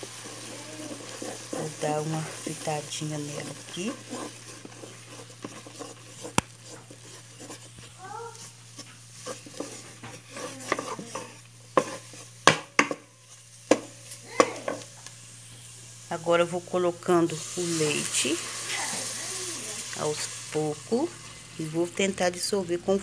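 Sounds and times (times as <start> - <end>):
spoon stirring and scraping paste: 0.0 - 13.9
light sizzle in pan: 0.0 - 23.0
spoon knocking against pan: 11.8 - 13.1.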